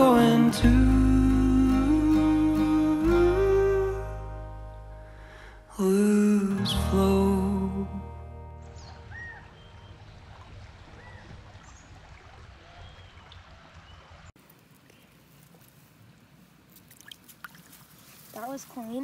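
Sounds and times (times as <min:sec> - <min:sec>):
mountain stream flowing: 0:08.9 - 0:14.4.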